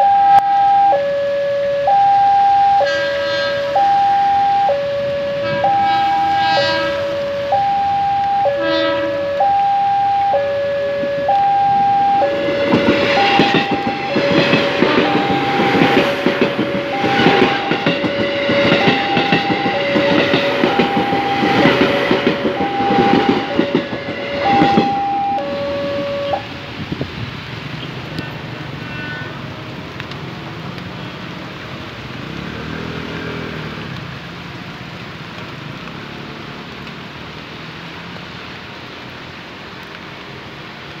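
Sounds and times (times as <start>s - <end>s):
car passing on wet road: 0.0s - 41.0s
train wheels clacking: 11.8s - 26.4s.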